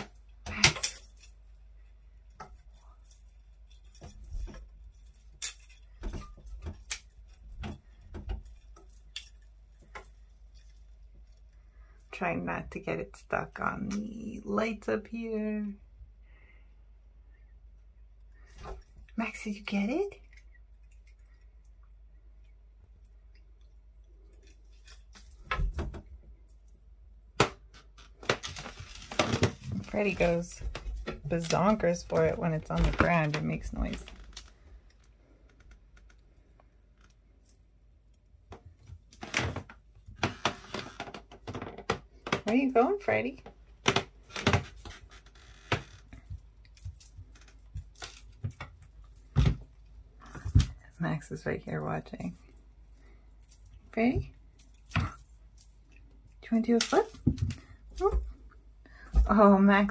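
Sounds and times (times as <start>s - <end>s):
cat toy bell jingling: 0.0s - 12.1s
small bell jingling: 0.0s - 12.6s, 18.4s - 21.7s, 28.5s - 34.8s, 46.0s - 59.9s.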